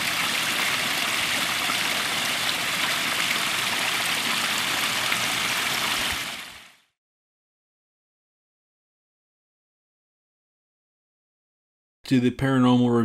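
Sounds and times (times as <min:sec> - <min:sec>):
running water rushing: 0:00.0 - 0:06.8.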